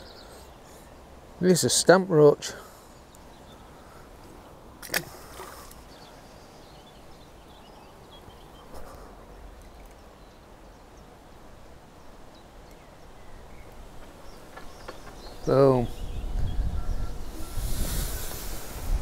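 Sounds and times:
wind rumbling on microphone: 12.9s - 19.0s.

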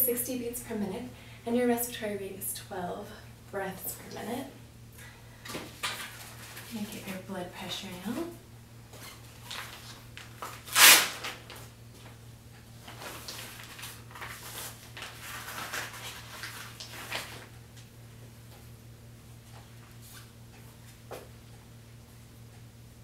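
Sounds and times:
velcro tearing: 9.5s - 11.6s.

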